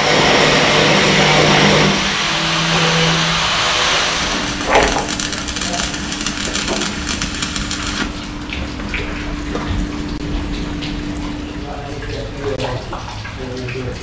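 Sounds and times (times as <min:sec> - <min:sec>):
welding arc crackling: 0:03.7 - 0:08.4.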